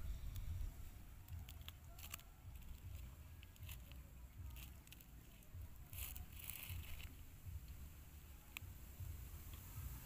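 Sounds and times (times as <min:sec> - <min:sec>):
steady low rumble: 0:00.0 - 0:10.0
plastic wrapper crinkling: 0:01.2 - 0:07.3.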